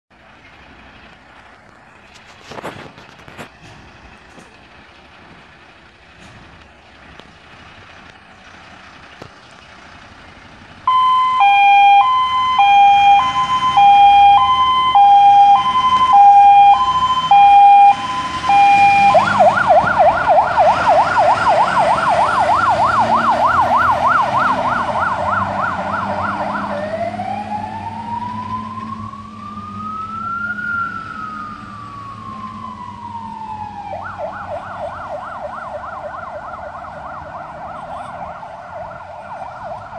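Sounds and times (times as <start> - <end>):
diesel engine: 0.1 - 39.9
fire engine siren: 10.8 - 39.9.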